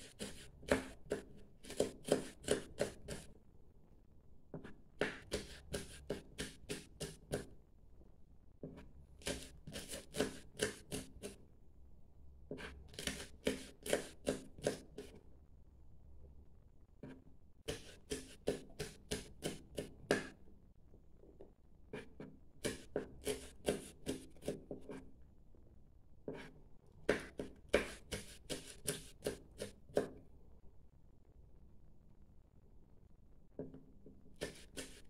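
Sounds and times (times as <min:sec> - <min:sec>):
knife chopping on plastic board: 0:00.0 - 0:03.3, 0:04.5 - 0:07.6, 0:08.6 - 0:11.4, 0:12.5 - 0:15.2, 0:17.0 - 0:20.4, 0:21.9 - 0:25.1, 0:26.3 - 0:30.2, 0:33.6 - 0:35.0.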